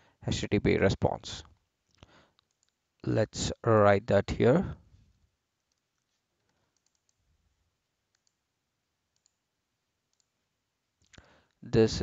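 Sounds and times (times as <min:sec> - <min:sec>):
computer mouse clicks: 0:01.9 - 0:02.8, 0:05.6 - 0:07.2, 0:08.1 - 0:08.4, 0:09.1 - 0:09.4, 0:10.1 - 0:10.4.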